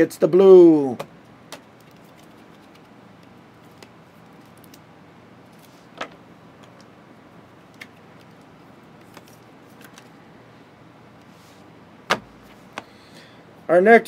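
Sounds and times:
cards and plastic sleeves rustling: 1.5 - 4.8, 5.4 - 6.9, 7.7 - 10.2.

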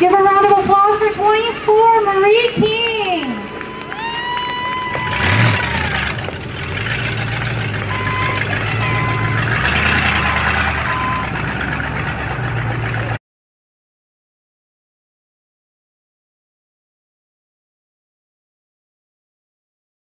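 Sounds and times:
engines running at low speed: 0.0 - 13.2
high held tone: 7.8 - 11.5
reversing alarm beeping: 7.8 - 11.6.

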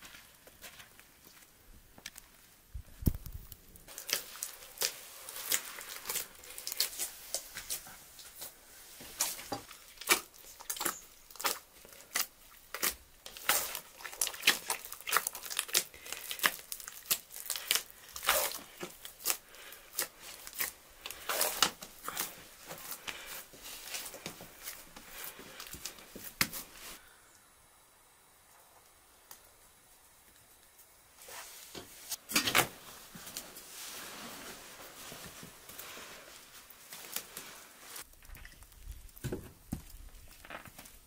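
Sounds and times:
dough slapping and tearing: 3.0 - 27.0.

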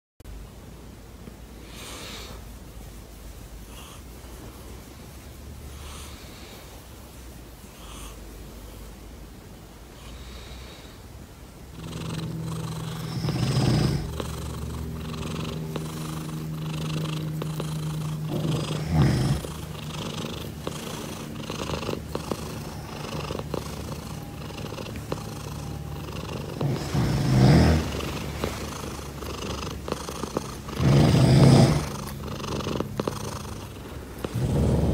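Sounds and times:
cat purring: 11.7 - 34.9.

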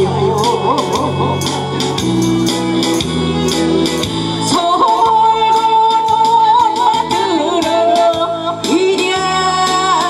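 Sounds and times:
woman singing into a microphone: 0.0 - 1.6, 4.4 - 10.0
amplified backing track with beat: 0.0 - 10.0.

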